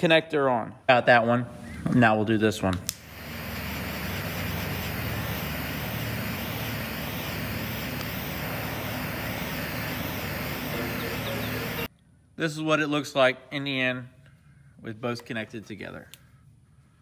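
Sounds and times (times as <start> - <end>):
torch lighter hissing: 2.9 - 11.9.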